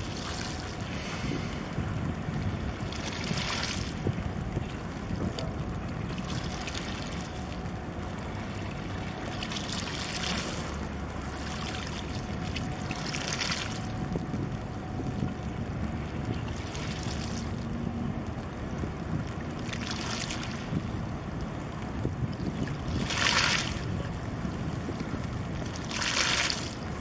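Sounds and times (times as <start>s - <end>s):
wind buffeting microphone: 0.0s - 9.2s, 12.2s - 27.0s
water splashing: 16.4s - 17.9s, 22.7s - 24.2s, 25.6s - 27.0s.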